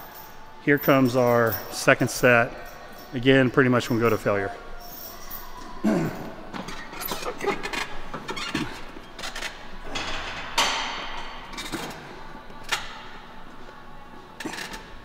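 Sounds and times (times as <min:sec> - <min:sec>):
faint gym background: 0:00.0 - 0:15.0
barbell and bench clanking: 0:06.8 - 0:12.0.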